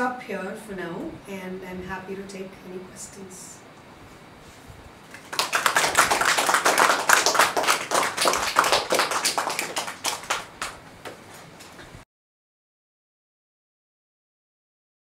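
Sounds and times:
audience applauding: 0:05.1 - 0:11.8.

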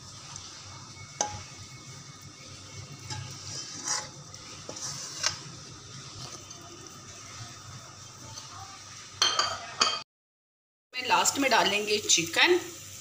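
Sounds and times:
metal spoon scraping a pot: 0:02.8 - 0:06.6.

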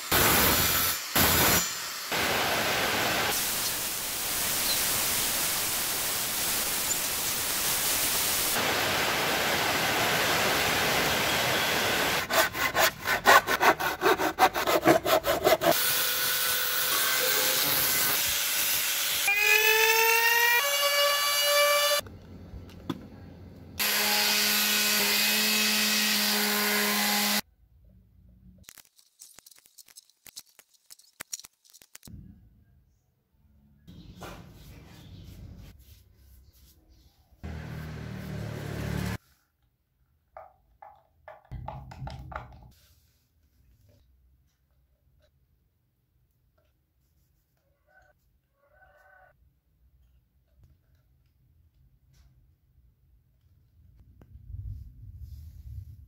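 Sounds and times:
circular saw cutting wood: 0:10.9 - 0:22.0, 0:23.8 - 0:27.4, 0:37.4 - 0:39.2
hand saw cutting wood: 0:12.0 - 0:16.0
motor whine rising in pitch: 0:37.4 - 0:39.2.

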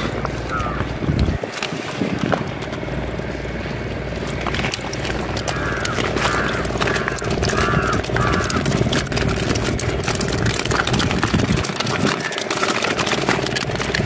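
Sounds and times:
steady engine hum: 0:00.0 - 0:14.0
plastic sack rustling: 0:04.4 - 0:14.0.

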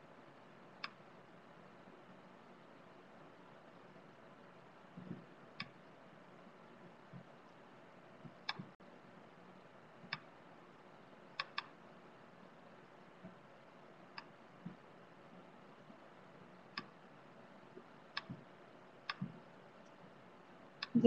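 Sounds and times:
computer clicks: 0:11.4 - 0:11.7.

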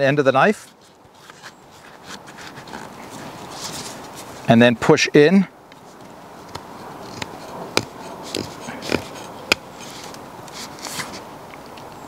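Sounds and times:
knife carving wood: 0:05.9 - 0:11.3.

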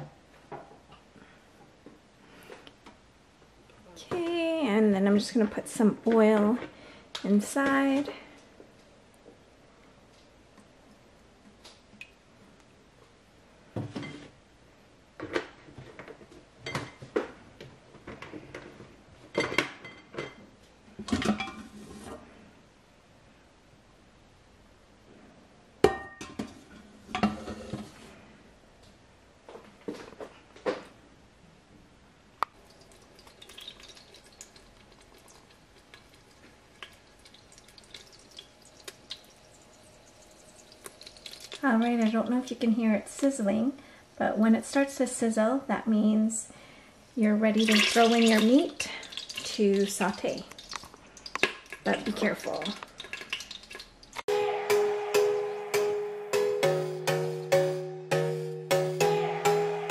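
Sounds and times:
oil sizzling in a pot: 0:32.6 - 0:42.5, 0:47.6 - 0:54.3.

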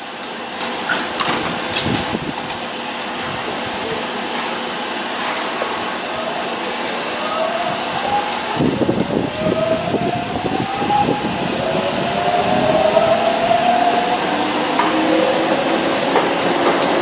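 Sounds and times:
train motors whining: 0:00.0 - 0:17.0
wheel and car clatter: 0:00.1 - 0:06.1, 0:14.7 - 0:17.0.

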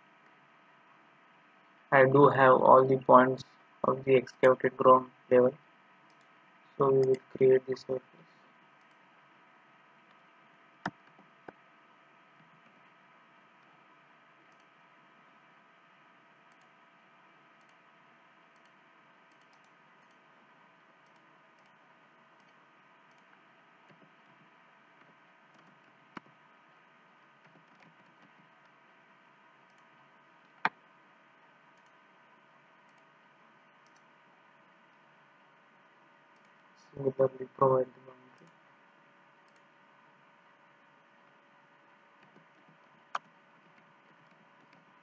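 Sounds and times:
background hum and hiss: 0:00.0 - 0:45.0
computer mouse clicks: 0:06.0 - 0:06.4, 0:08.8 - 0:09.0, 0:14.5 - 0:14.8, 0:16.4 - 0:16.8, 0:17.6 - 0:17.8, 0:18.4 - 0:20.2, 0:21.0 - 0:21.8, 0:22.4 - 0:26.4, 0:27.3 - 0:28.8, 0:29.6 - 0:30.8, 0:31.7 - 0:32.0, 0:32.8 - 0:33.1, 0:33.8 - 0:34.1, 0:36.3 - 0:36.6, 0:39.4 - 0:39.7, 0:42.2 - 0:45.0.

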